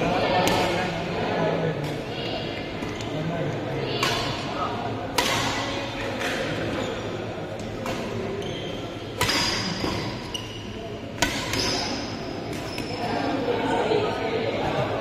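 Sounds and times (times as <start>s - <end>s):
racket hitting shuttlecock: 5.1s - 6.5s, 9.2s - 10.2s, 11.2s - 12.8s.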